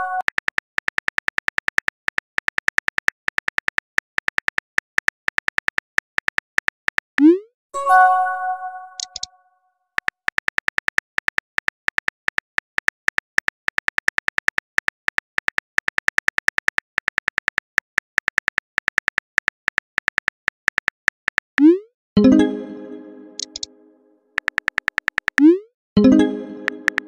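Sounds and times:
phone keyboard tap clicks: 0:09.0 - 0:09.3, 0:23.4 - 0:23.7, 0:26.6 - 0:27.0.

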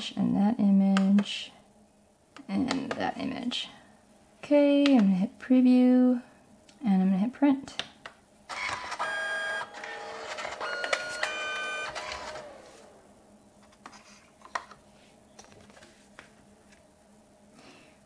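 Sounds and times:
printer motor whining: 0:08.5 - 0:13.3.

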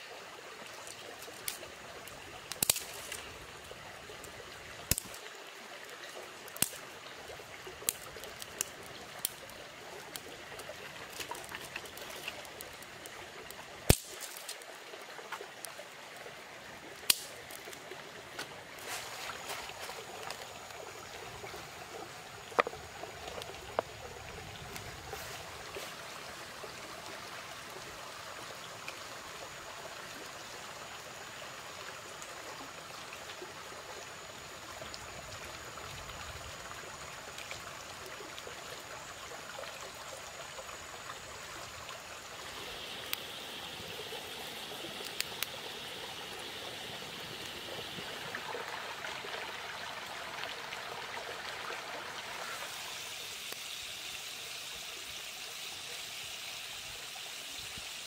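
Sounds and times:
campfire crackling: 0:00.2 - 0:54.5
sharp twig snaps: 0:02.5 - 0:03.2, 0:04.9 - 0:05.2, 0:06.6 - 0:06.8, 0:13.9 - 0:14.6, 0:17.0 - 0:17.7
fire rushing hiss: 0:41.5 - 0:48.4, 0:52.3 - 0:58.0.

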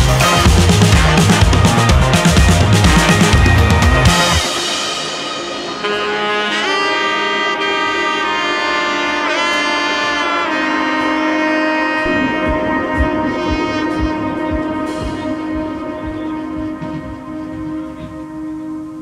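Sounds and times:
low beat: 0:00.0 - 0:04.8, 0:11.8 - 0:19.0
pitch-bending lead melody: 0:00.0 - 0:09.4, 0:11.1 - 0:19.0
sustained chords: 0:11.6 - 0:19.0.

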